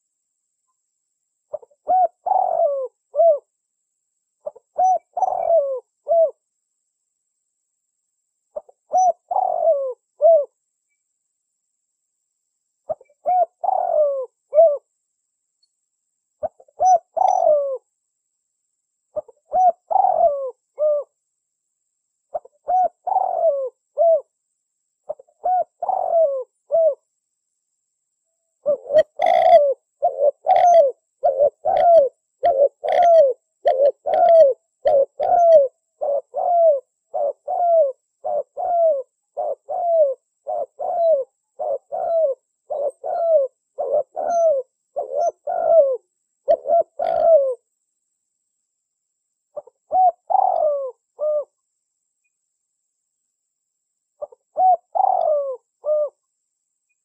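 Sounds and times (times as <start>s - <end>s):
doves cooing: 1.5s - 3.5s, 4.4s - 6.4s, 8.6s - 10.5s, 12.9s - 14.8s, 16.4s - 17.8s, 19.2s - 21.1s, 22.3s - 24.3s, 25.1s - 27.0s, 28.6s - 47.6s, 49.6s - 51.5s, 54.2s - 56.2s.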